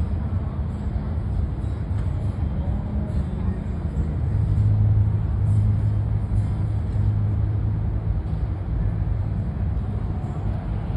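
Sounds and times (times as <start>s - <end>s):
road traffic engine hum: 0.0s - 10.9s.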